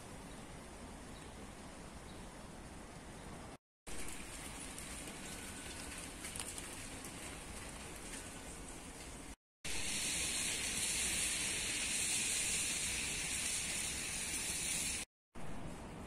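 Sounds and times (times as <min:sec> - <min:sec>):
rain falling: 0:03.9 - 0:15.0.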